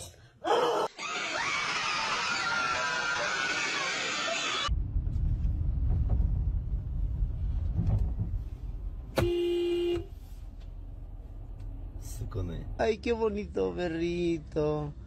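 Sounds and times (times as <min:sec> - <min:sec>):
car engine rumble inside cabin: 0:04.7 - 0:14.9
car horn blast: 0:09.1 - 0:10.2.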